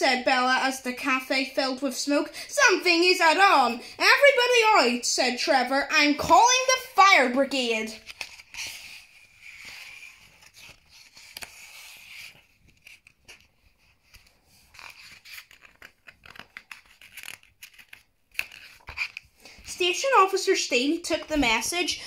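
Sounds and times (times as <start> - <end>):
paper pages turning: 7.6 - 20.0.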